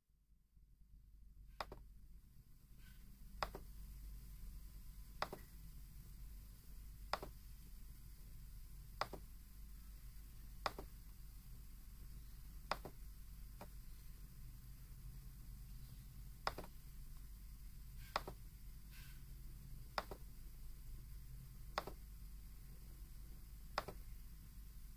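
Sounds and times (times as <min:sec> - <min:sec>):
low steady hum: 0:00.2 - 0:24.9
faint sharp clicks: 0:03.4 - 0:03.7, 0:05.2 - 0:05.5, 0:10.6 - 0:11.0, 0:12.6 - 0:13.0, 0:16.4 - 0:17.3, 0:21.7 - 0:22.1, 0:23.7 - 0:24.1.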